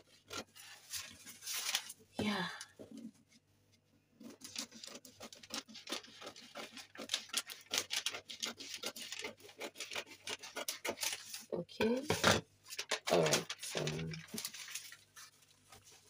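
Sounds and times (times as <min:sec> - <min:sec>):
scissors snipping paper: 0:04.3 - 0:11.5.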